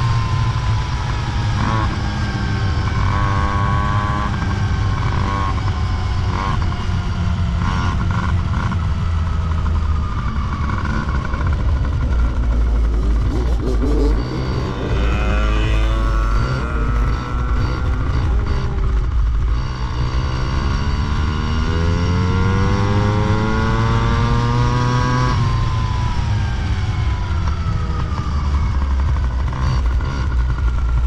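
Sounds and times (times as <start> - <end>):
motorcycle engine revving: 0.0 - 31.0
heavy low rumble: 8.3 - 31.0.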